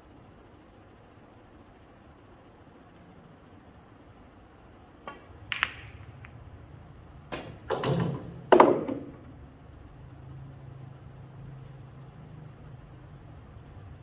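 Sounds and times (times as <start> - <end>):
pool cue striking ball: 5.0 - 6.4, 7.3 - 9.2
pool balls clicking together: 5.0 - 6.5, 7.3 - 9.2.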